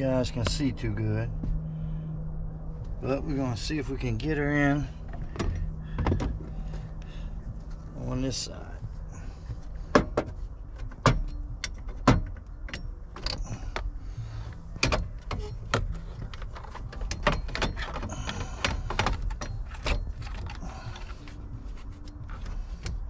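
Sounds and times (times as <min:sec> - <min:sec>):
metal parts clicking and knocking: 0:09.9 - 0:13.9, 0:14.5 - 0:23.0.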